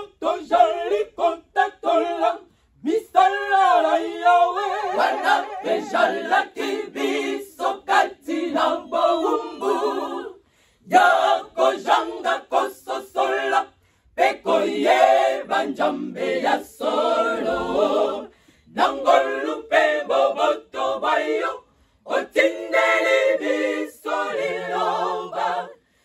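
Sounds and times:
women's choir singing a cappella: 0.0s - 26.0s.

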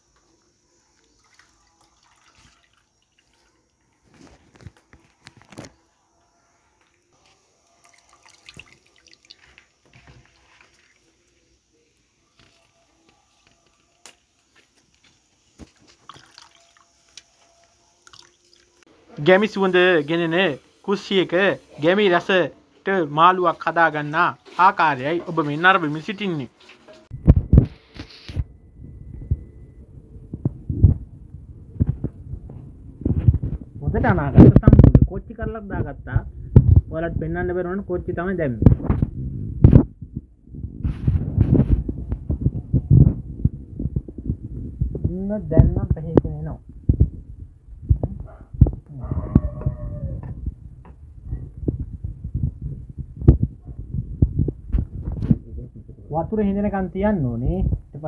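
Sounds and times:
liquid splashing and dripping: 1.0s - 3.8s, 7.7s - 11.1s, 15.6s - 17.4s, 18.0s - 18.9s
dull rumble: 38.7s - 45.8s, 46.6s - 56.1s.

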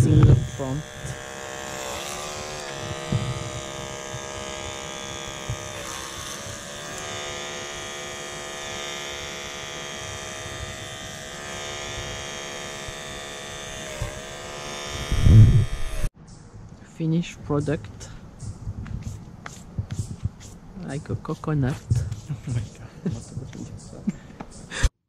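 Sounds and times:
electric hair trimmer buzzing: 0.0s - 16.1s.

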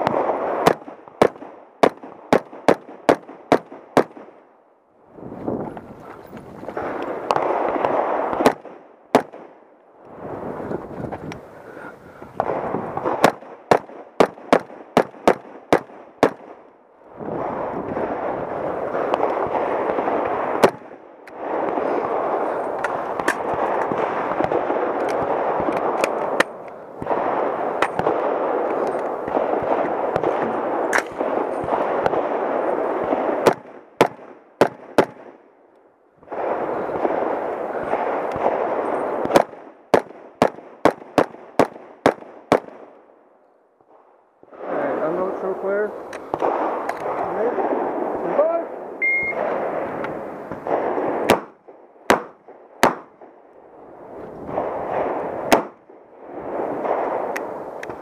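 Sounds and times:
rifle gunshots: 0.0s - 4.5s, 6.7s - 9.6s, 12.4s - 35.4s, 36.2s - 43.1s, 44.5s - 53.4s, 54.4s - 58.0s
steady rushing noise: 17.0s - 34.0s.

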